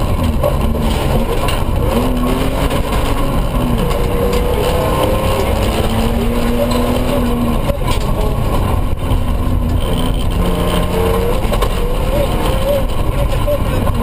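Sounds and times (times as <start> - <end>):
truck engine revving: 0.0 - 14.0
tyre and road rumble: 0.0 - 14.0.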